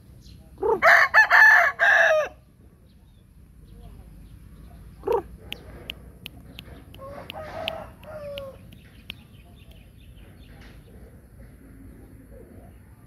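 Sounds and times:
rooster crowing: 0.6s - 2.4s, 7.0s - 8.6s
sharp ticks: 5.4s - 9.9s.

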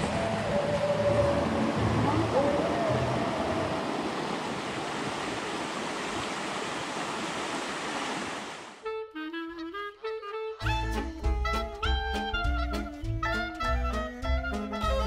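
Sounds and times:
creek rushing over rocks: 0.0s - 8.8s
upbeat jazzy woodwind music: 8.8s - 15.0s.

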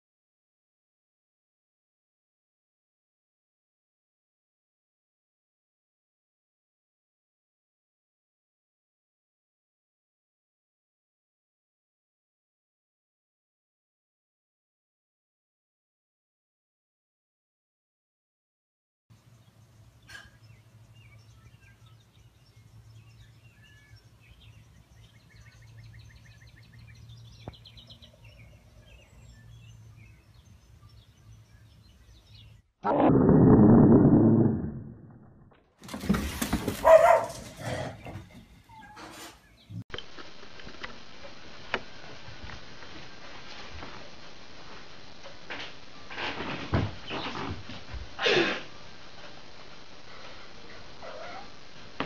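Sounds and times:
faint birdsong: 19.1s - 32.8s, 36.8s - 39.8s
dog barking: 36.8s - 37.8s.

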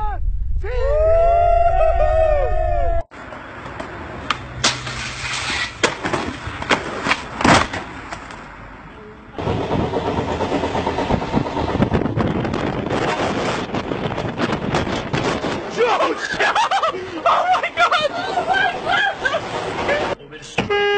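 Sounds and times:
wind rushing: 0.0s - 3.1s, 9.4s - 16.4s
moving train rumble: 8.0s - 15.7s, 17.1s - 20.2s.

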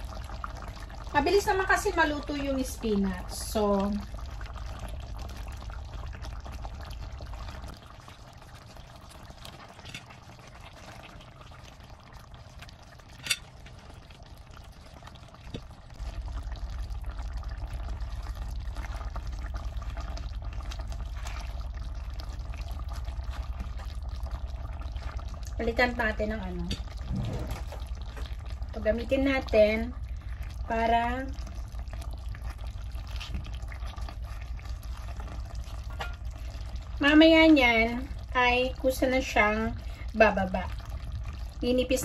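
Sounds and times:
low hum: 0.0s - 42.0s
sauce simmering and bubbling: 0.0s - 42.0s.

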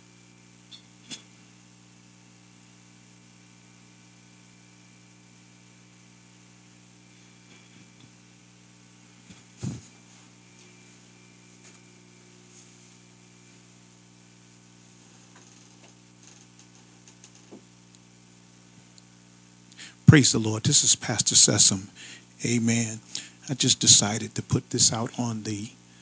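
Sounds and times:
electrical hum: 0.0s - 26.0s
microphone thump: 9.6s - 9.9s.

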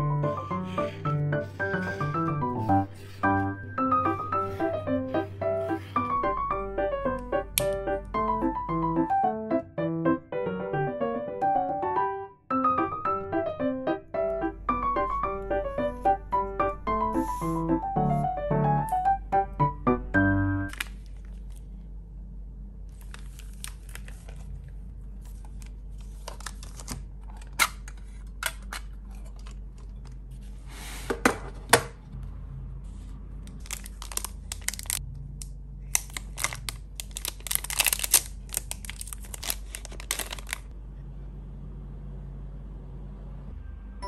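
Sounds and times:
plastic tearing: 20.7s - 21.6s, 22.9s - 29.6s, 33.5s - 35.0s, 35.8s - 40.7s
plastic wrappers crinkling: 20.7s - 21.8s, 22.9s - 30.0s, 33.4s - 35.0s, 35.8s - 40.7s
plastic case opening: 37.2s - 40.6s.

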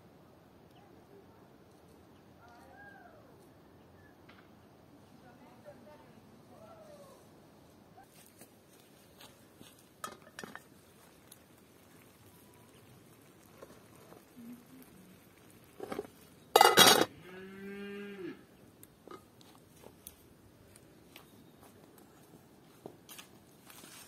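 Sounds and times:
pot lid and cookware clinking: 10.0s - 10.7s, 15.8s - 17.1s
cow mooing: 17.1s - 18.4s.

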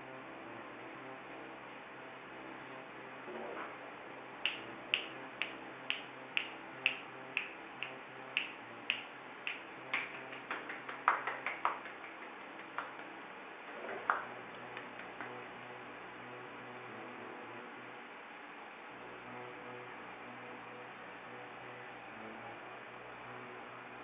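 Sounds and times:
fingers snapping: 4.4s - 13.1s.

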